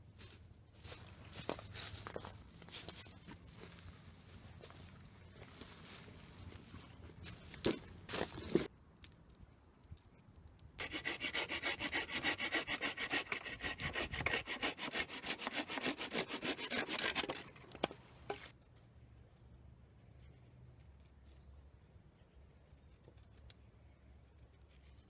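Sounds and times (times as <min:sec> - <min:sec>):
hand saw cutting branch: 0:10.8 - 0:18.5.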